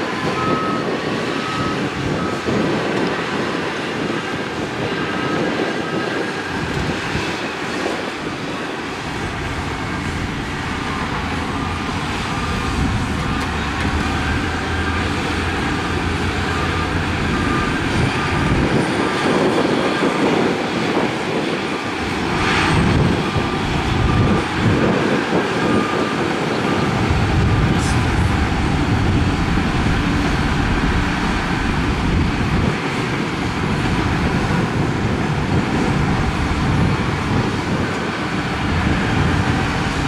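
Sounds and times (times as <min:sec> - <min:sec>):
reversing alarm beeping: 0:00.0 - 0:04.4, 0:09.3 - 0:20.4, 0:22.4 - 0:34.6
diesel engines under load: 0:00.0 - 0:40.0.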